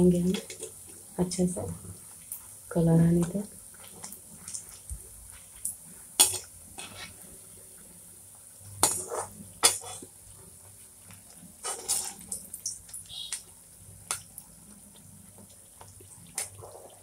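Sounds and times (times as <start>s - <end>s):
bread deep-frying in sizzling oil: 0.0s - 17.0s
metal skimmer scraping a pan: 6.2s - 7.2s, 11.6s - 12.3s.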